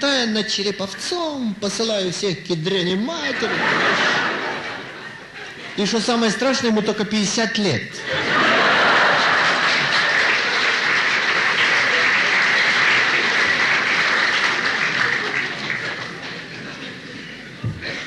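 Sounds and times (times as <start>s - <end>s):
audience applauding: 8.4s - 16.9s.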